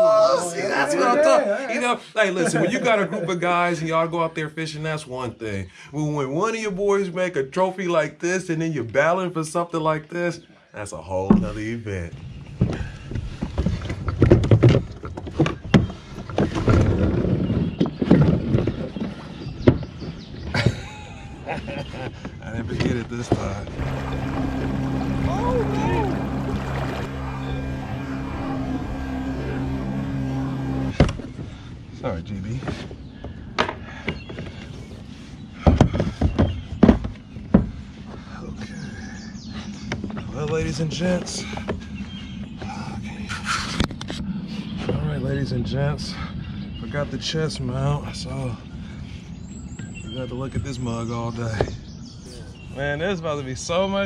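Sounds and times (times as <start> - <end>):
kayak hull knocking: 11.3 - 11.6, 22.2 - 31.4
loud thumps: 11.3 - 11.7, 22.8 - 31.6.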